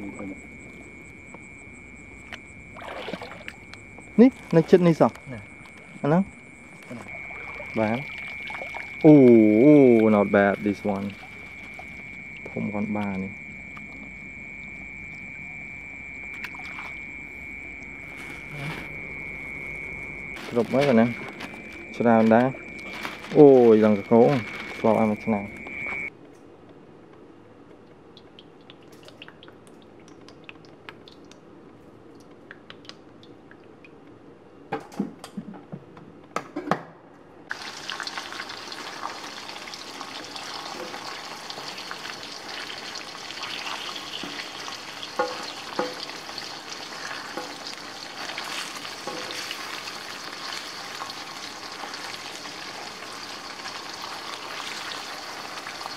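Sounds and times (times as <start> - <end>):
fish frying in oil: 6.4 - 26.1, 37.5 - 55.9.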